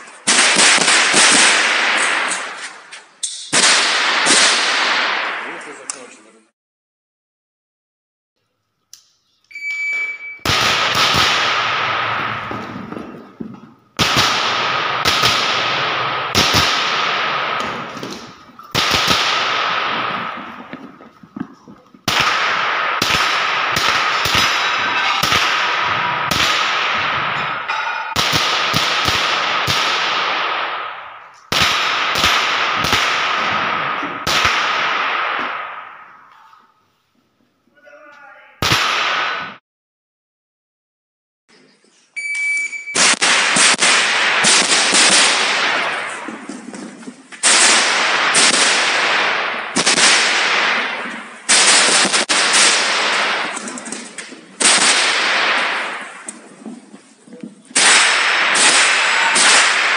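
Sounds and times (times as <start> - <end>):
rifle shots echoing indoors: 0.0 - 2.7, 3.4 - 5.7, 10.0 - 36.6, 38.6 - 39.6, 42.9 - 46.8, 47.4 - 56.3, 57.8 - 59.9
shot timer beep: 9.5 - 10.5, 42.2 - 43.0.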